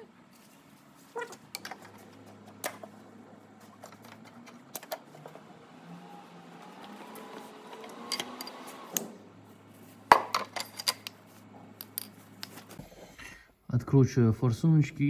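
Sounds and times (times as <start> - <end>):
metal tools clinking: 7.8 - 8.7, 10.1 - 11.2.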